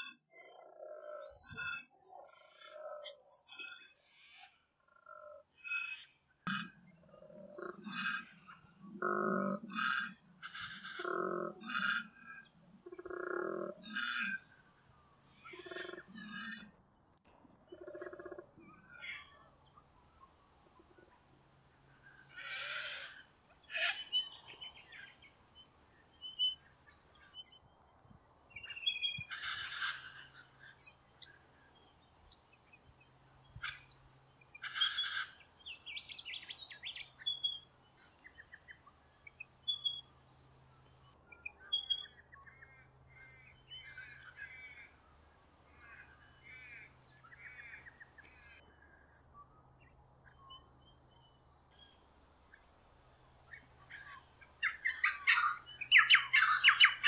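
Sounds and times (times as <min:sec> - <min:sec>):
harsh bird calls: 0:00.0 - 0:14.6, 0:22.0 - 0:25.6, 0:28.4 - 0:31.6, 0:33.5 - 0:40.1, 0:51.8 - 0:57.0.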